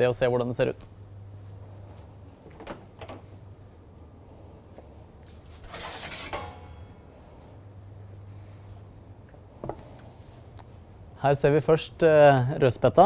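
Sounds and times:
metal pan clattering and ringing: 5.7 - 7.0
metal kitchenware knocks: 6.1 - 7.0.

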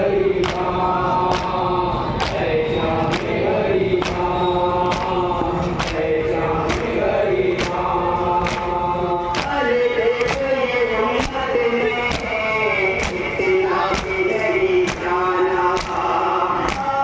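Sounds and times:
crowd chanting: 0.0 - 17.0
man singing lament into microphone: 0.0 - 17.0.

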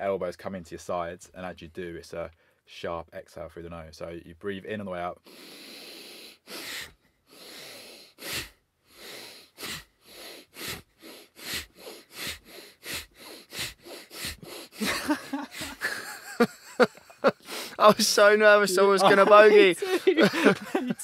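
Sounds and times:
men exhaling forcefully through nose: 5.3 - 15.9, 17.4 - 17.8
men laughing: 14.8 - 21.0.

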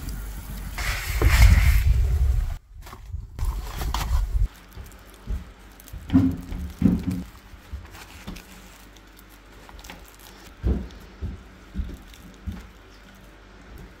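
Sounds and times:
flatbread pastry crackling: 3.4 - 10.6.

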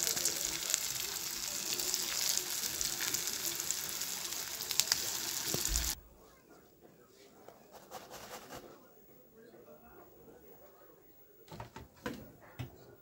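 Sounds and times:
food sizzling in hot oil: 0.0 - 6.0.

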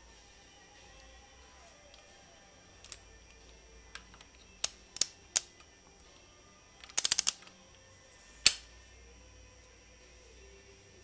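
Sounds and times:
socket ratchet clicking: 3.9 - 5.7, 6.8 - 7.6.

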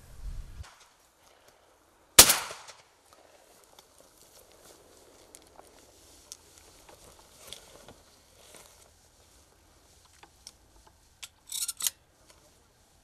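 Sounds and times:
dry brush rustling: 3.0 - 13.0.

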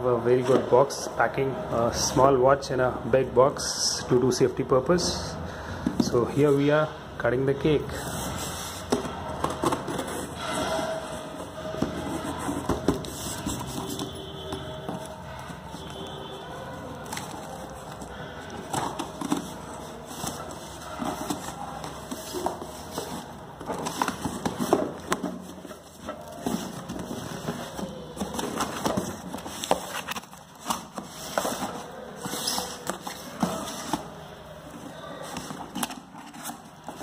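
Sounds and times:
cardboard scraping and tearing: 8.0 - 16.2.

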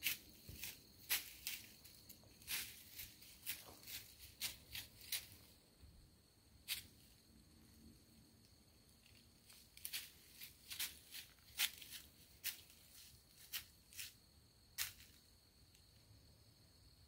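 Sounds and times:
footsteps crunching dry leaves: 0.0 - 5.6, 9.5 - 14.2.

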